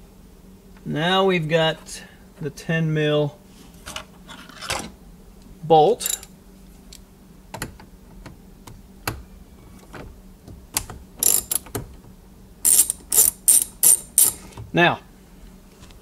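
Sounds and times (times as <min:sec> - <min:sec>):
socket ratchet clicking: 0:06.0 - 0:06.3, 0:10.8 - 0:11.8, 0:12.7 - 0:14.4.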